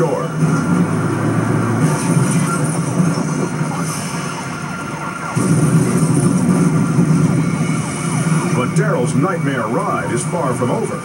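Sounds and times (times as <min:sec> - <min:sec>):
engine and road noise: 0:00.0 - 0:11.0
police siren wailing: 0:00.0 - 0:11.0.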